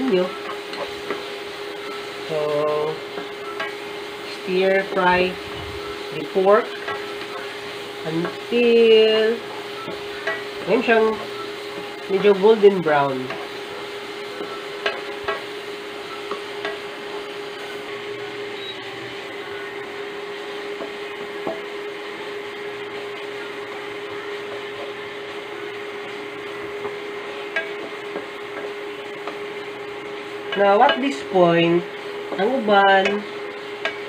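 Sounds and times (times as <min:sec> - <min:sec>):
meat sizzling in a wok: 0:00.0 - 0:34.0
steady hum: 0:00.0 - 0:34.0
spatula tapping a pan: 0:03.2 - 0:03.8, 0:14.4 - 0:15.5, 0:16.2 - 0:16.9, 0:20.8 - 0:21.7, 0:26.8 - 0:29.4, 0:33.8 - 0:34.0.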